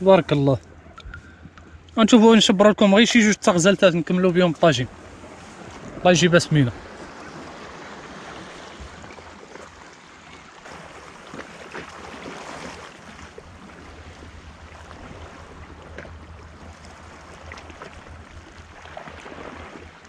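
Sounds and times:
sea water lapping against rocks: 4.9 - 20.0
small water splashes: 6.8 - 20.0.

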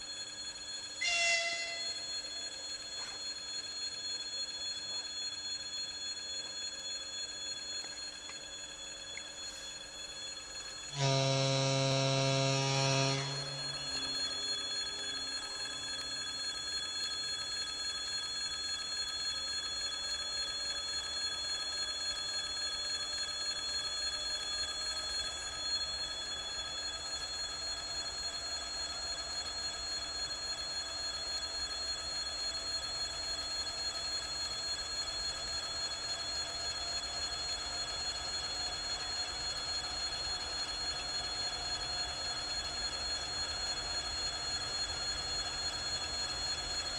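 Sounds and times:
locomotive horn blast: 1.0 - 1.9, 11.0 - 13.6.

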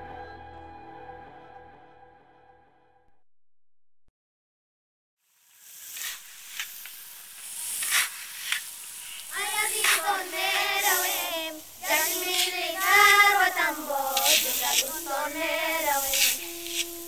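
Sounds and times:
hiss: 5.2 - 17.0
child singing: 9.3 - 17.0.

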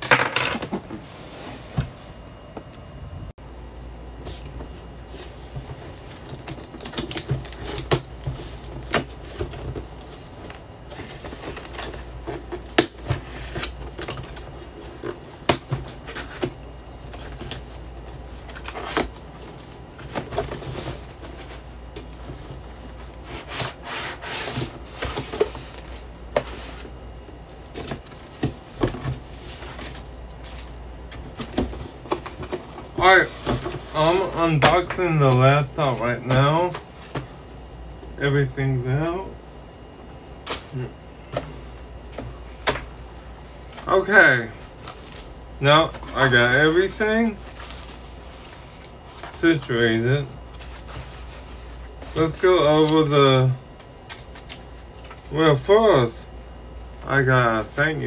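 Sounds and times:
plastic wrap rustling: 47.2 - 49.4.

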